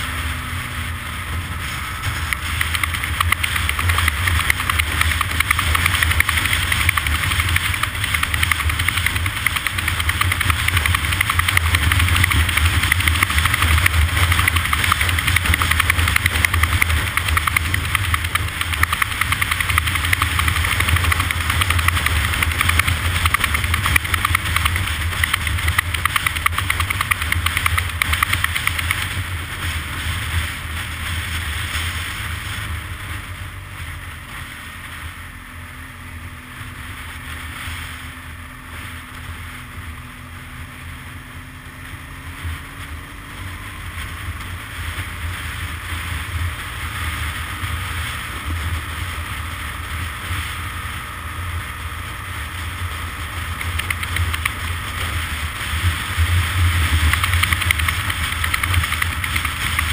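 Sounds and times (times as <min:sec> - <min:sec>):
engine running with low rumble: 0:00.0 - 0:59.9.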